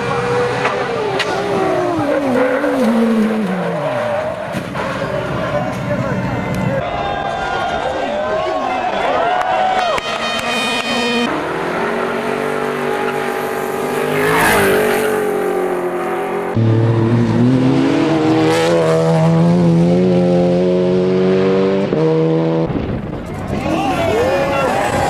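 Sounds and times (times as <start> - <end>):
race car accelerating hard: 0.0 - 5.8, 9.9 - 25.0
rally car passing at speed: 9.9 - 25.0.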